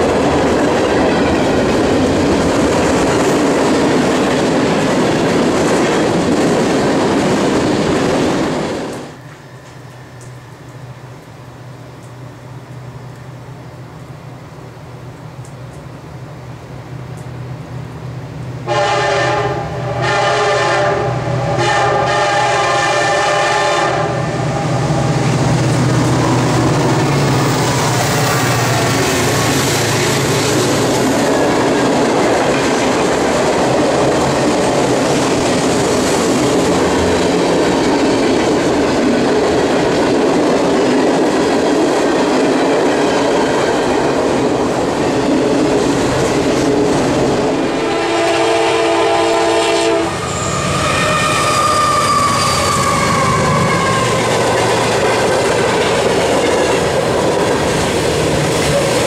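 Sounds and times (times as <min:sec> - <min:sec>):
freight cars rumbling on rails: 0:00.0 - 0:59.0
locomotive horn: 0:18.6 - 0:24.8, 0:47.6 - 0:54.3.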